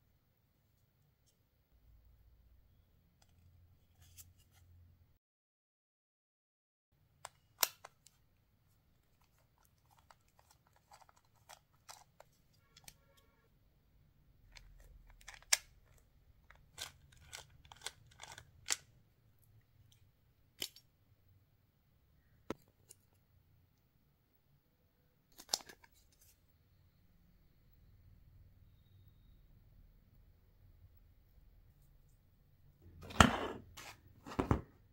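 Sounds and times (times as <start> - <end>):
plastic and metal parts clicking: 9.0 - 13.0, 14.5 - 18.9
brief squeak: 28.6 - 29.5.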